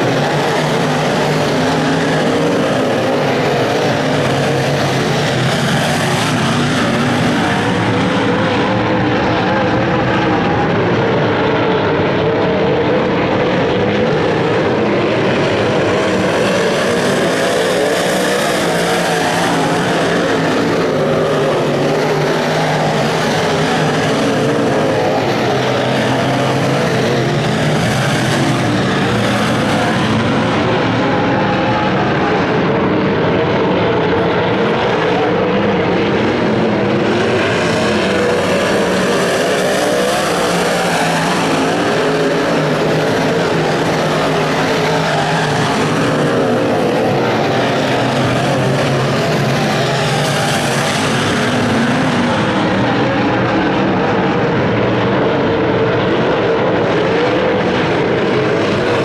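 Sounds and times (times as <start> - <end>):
race car engines droning: 0.0 - 59.0.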